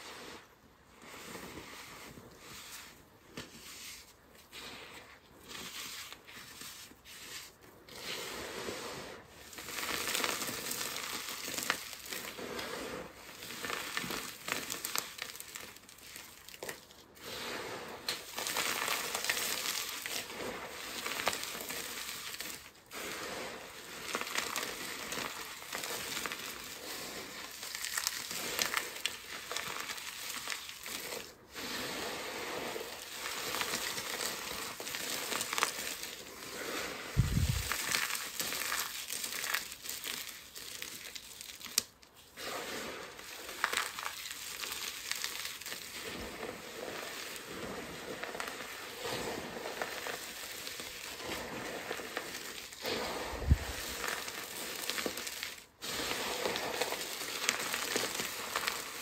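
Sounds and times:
soap shards crunching and crackling: 9.6 - 12.4, 13.4 - 17.0, 24.0 - 31.3, 32.8 - 59.0.

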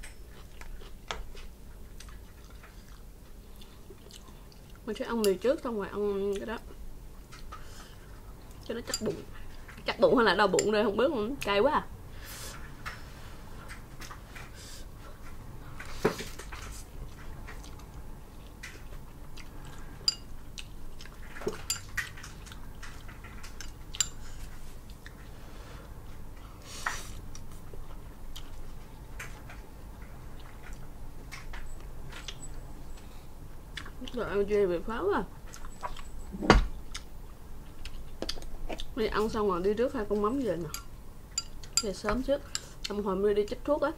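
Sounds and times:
eating sounds: 0.3 - 4.8.

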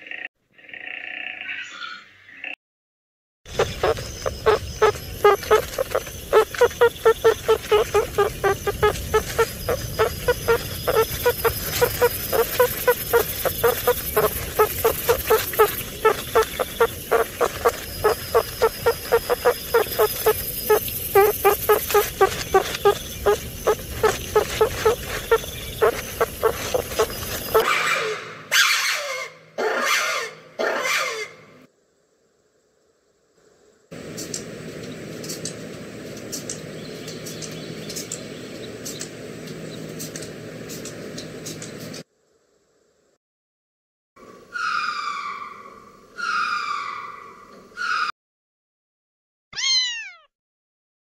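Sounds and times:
meerkats chirping: 3.5 - 27.6
background hiss: 31.7 - 35.0.

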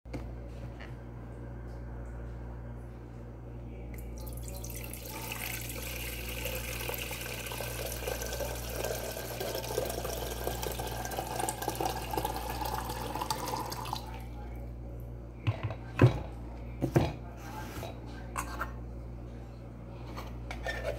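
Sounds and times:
water pouring into metal teapot: 4.2 - 14.2.

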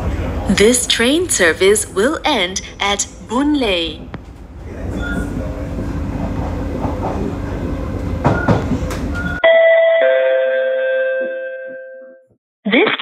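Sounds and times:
train rail running noise: 0.0 - 9.4.

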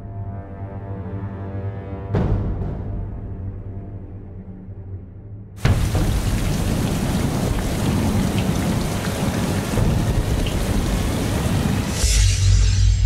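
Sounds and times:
heavy rain pouring: 5.6 - 12.4.

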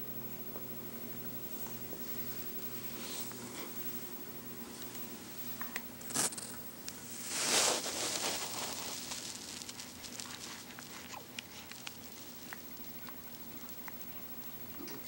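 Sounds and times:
fabric rustling against microphone: 7.0 - 12.4.

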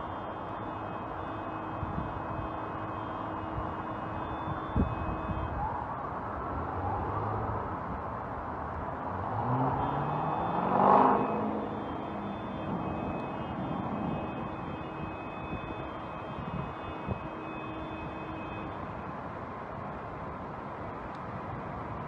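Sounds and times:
vehicle engine revving: 9.2 - 12.4.

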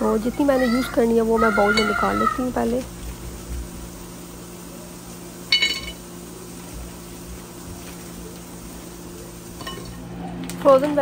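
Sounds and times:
glass clink: 5.5 - 6.0, 9.6 - 10.0.

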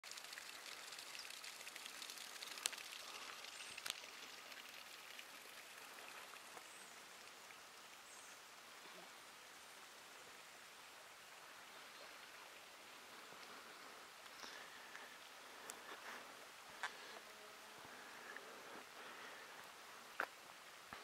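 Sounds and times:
water pattering and trickling: 0.0 - 21.0.

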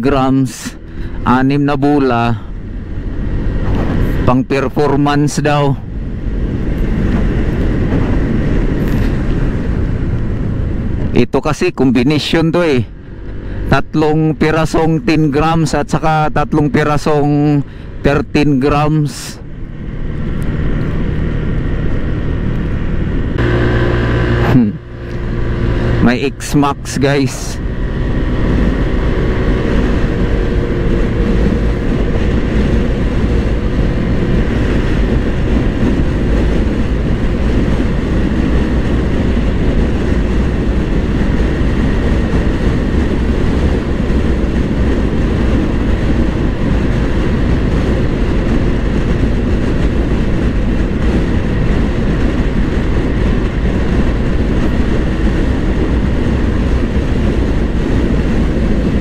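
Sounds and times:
wind noise on microphone: 0.0 - 59.0
scooter engine droning: 2.4 - 4.4, 19.4 - 59.0.

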